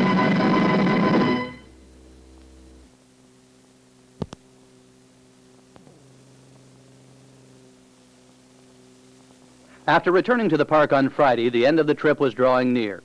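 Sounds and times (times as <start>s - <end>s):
music: 0.0s - 2.0s
faint electrical hum: 0.0s - 13.0s.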